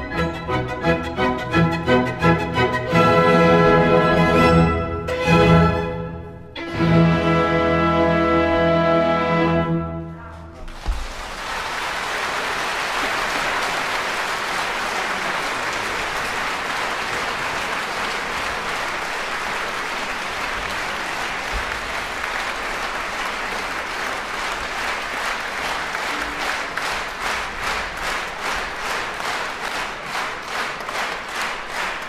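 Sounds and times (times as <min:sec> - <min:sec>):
audience applauding: 0:10.7 - 0:32.0.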